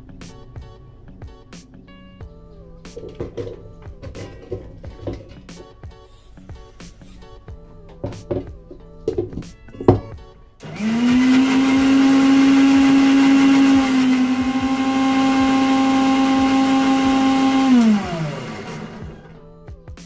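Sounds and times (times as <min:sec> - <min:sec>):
blender motor whining: 0:10.6 - 0:19.4.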